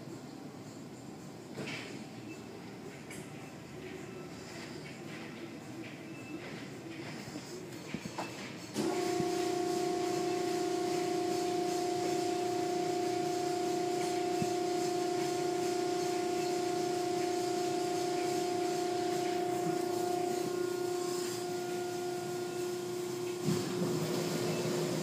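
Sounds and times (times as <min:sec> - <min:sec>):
car wash machine hum: 0:08.7 - 0:25.0
cloth brushes rubbing over car: 0:08.8 - 0:24.9.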